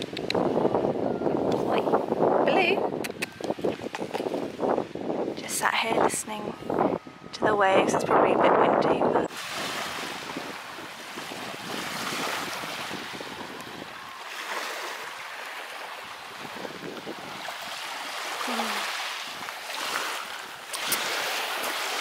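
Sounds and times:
wind buffeting microphone: 0.0s - 22.0s
waves lapping on shingle: 9.3s - 22.0s.

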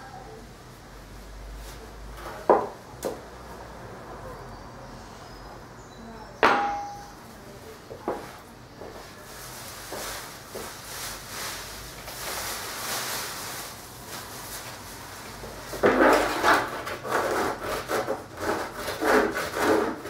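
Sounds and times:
brush sweeping: 8.2s - 16.1s.

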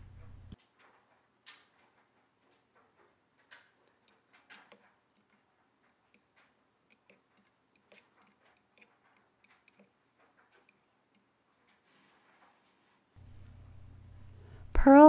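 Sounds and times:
knitting tool clicking on loom pegs: 0.0s - 11.8s.

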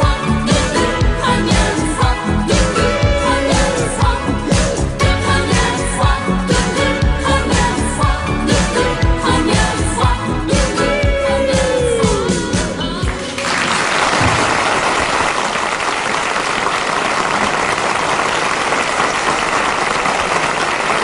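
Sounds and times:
pop song: 0.0s - 13.6s
studio audience applause: 13.0s - 21.0s.

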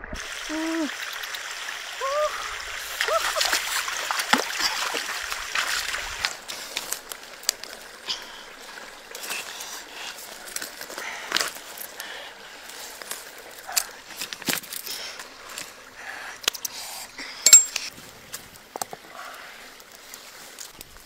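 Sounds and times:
feet splashing through stream: 0.6s - 16.1s
clicks and rustles on pebbles: 12.7s - 15.8s.

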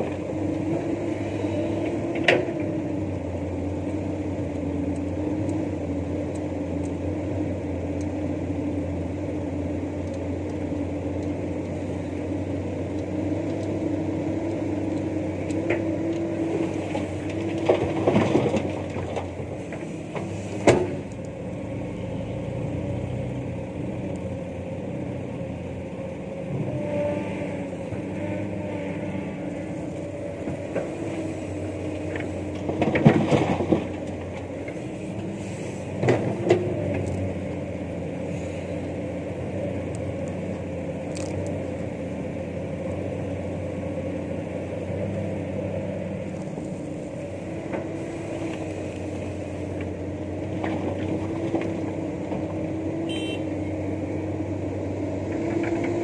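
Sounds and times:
excavator diesel engine running: 0.0s - 56.0s
rock and earth clattering: 15.4s - 21.1s, 30.2s - 34.9s, 46.2s - 52.7s.

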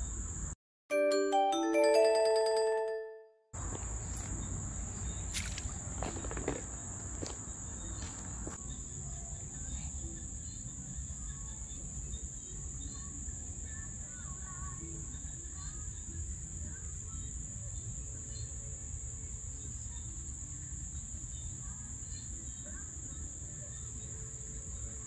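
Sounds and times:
insects droning: 0.0s - 0.6s, 3.6s - 25.0s
glockenspiel-like jingle: 0.9s - 3.5s.

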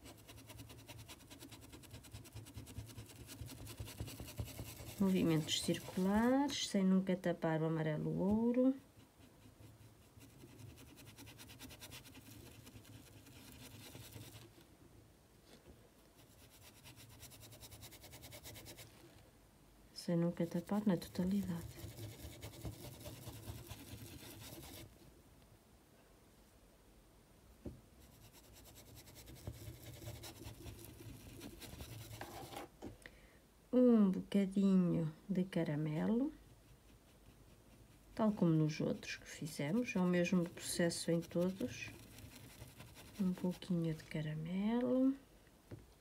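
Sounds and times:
paintbrush scratching on fabric: 0.0s - 6.7s, 8.0s - 14.6s, 16.2s - 19.1s, 20.4s - 25.0s, 28.0s - 32.7s, 36.0s - 44.4s.

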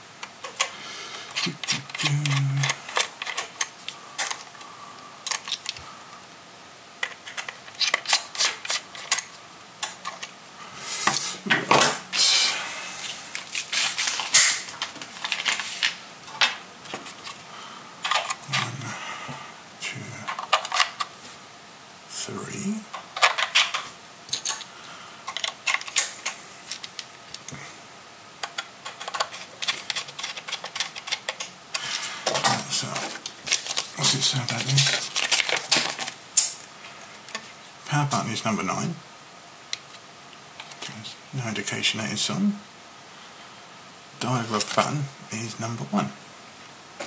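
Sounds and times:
plastic clicks and scrapes: 1.3s - 4.6s, 7.0s - 10.3s, 20.3s - 21.1s, 25.3s - 27.5s, 28.4s - 33.9s.

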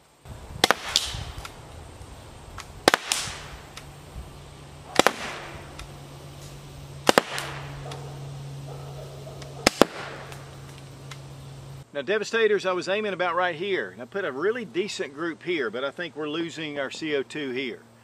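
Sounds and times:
air pistol shots: 0.6s - 1.6s, 2.6s - 3.9s, 4.9s - 5.9s, 7.0s - 8.0s, 9.4s - 11.2s.

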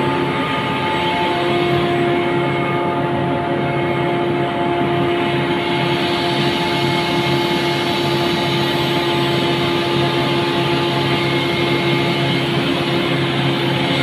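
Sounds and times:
air compressor humming and whining: 0.0s - 14.0s.

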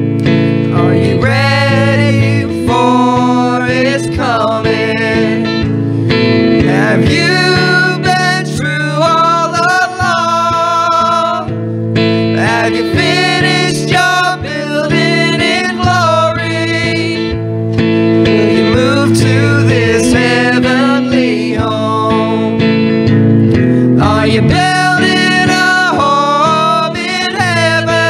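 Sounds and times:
electric guitar: 0.0s - 28.0s
woman singing gospel: 0.7s - 5.4s, 6.7s - 11.5s, 12.4s - 17.2s.

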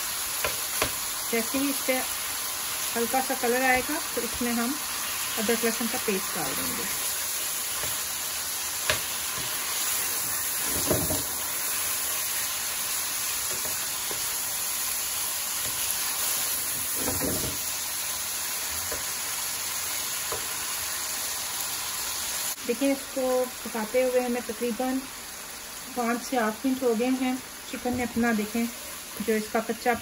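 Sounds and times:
chicken sizzling in a pan: 0.0s - 30.0s
spatula knocking on pan: 0.4s - 1.0s, 8.8s - 9.6s, 10.6s - 11.3s.

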